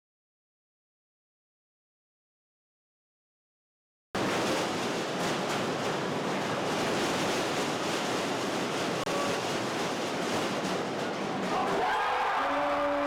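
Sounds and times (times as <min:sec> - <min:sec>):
stadium crowd rushing noise: 0:04.2 - 0:13.0.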